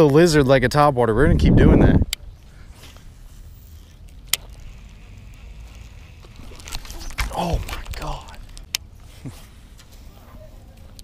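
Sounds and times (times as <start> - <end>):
faint wind noise on microphone: 0.4 - 8.6.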